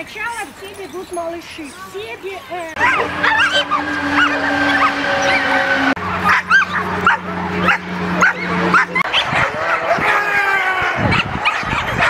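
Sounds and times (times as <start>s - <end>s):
dogs barking and yipping: 2.7s - 12.0s
steady low hum: 2.8s - 11.4s.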